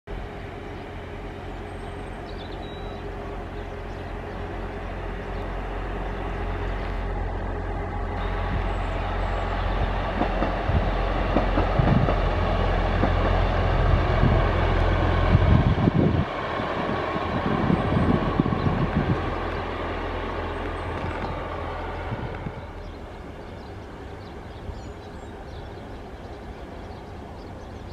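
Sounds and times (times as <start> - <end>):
diesel train engine drone: 0.1 - 27.9
wheels clattering on rails: 8.4 - 15.0, 16.2 - 23.0.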